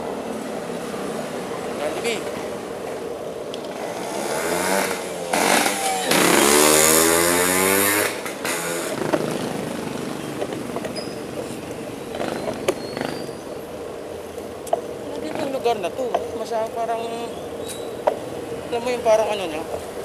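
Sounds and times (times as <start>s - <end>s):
road noise: 0.0s - 20.0s
motorcycle engine passing: 0.6s - 13.7s.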